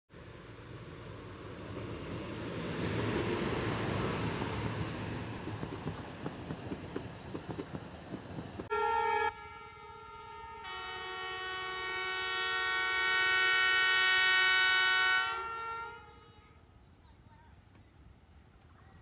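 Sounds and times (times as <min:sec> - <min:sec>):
train wheels clattering on rails: 0:01.6 - 0:08.7
locomotive air horn: 0:08.7 - 0:16.6.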